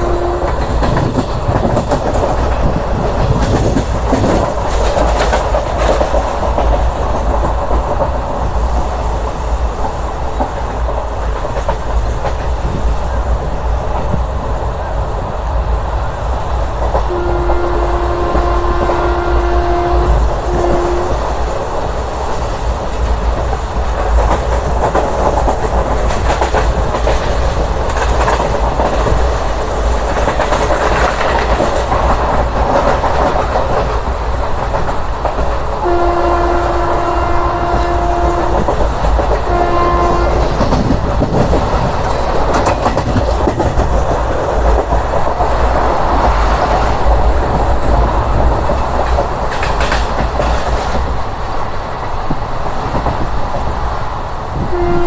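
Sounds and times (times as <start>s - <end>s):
train horn blasts: 0.0s - 0.7s, 17.1s - 21.4s, 35.8s - 38.8s, 39.4s - 40.6s, 54.6s - 55.0s
train wheels rumbling on rails: 0.0s - 55.0s.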